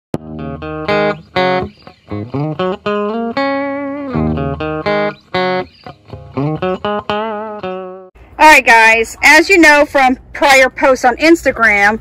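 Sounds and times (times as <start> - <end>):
plucked guitar melody: 0.2 - 8.1.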